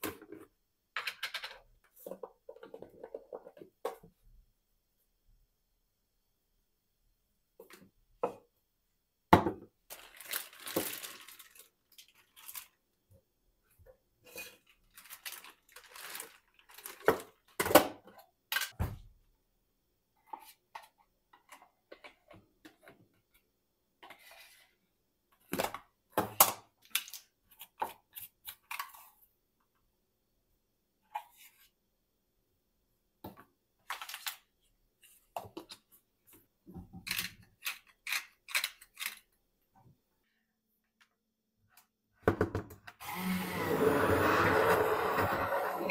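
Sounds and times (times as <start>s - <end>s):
plastic containers knocked on countertop: 9.3s - 9.7s, 42.2s - 42.9s.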